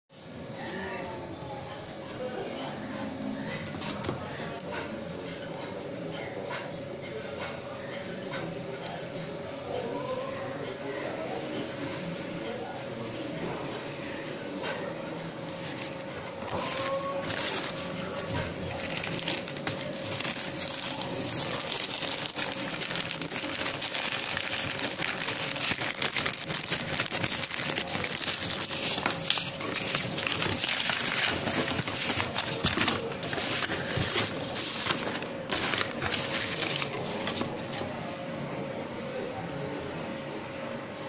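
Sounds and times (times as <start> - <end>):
plastic and paper crinkling: 15.4 - 38.0.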